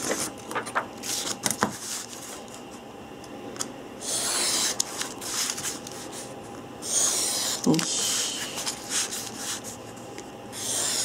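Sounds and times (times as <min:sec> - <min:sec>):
paper sheets rustling: 0:00.0 - 0:02.6, 0:07.6 - 0:09.8.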